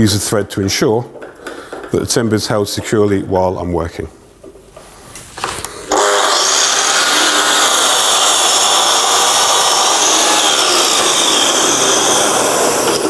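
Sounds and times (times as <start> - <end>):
mitre saw cutting wood: 5.9 - 13.0.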